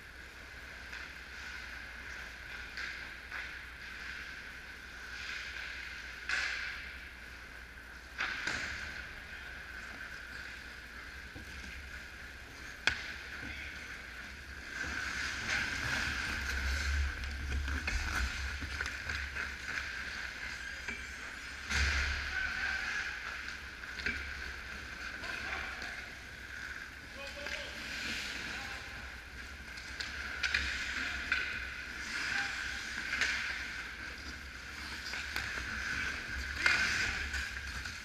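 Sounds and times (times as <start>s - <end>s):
skates scraping on ice: 8.2s - 38.0s.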